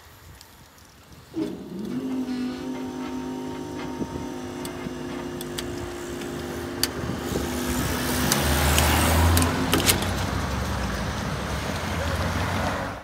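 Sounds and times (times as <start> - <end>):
steady hum: 1.3 - 9.8
cars driving past: 1.4 - 13.0
sharp clicks: 8.1 - 10.2.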